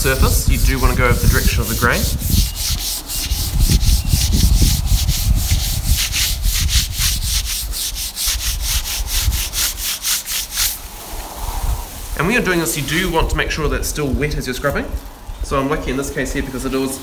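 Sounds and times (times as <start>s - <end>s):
pad rasping on wood: 0.0s - 10.8s.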